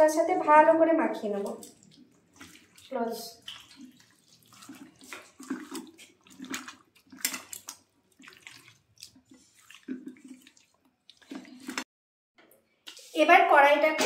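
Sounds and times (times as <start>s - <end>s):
hand squelching meat in paste: 1.6s - 11.8s.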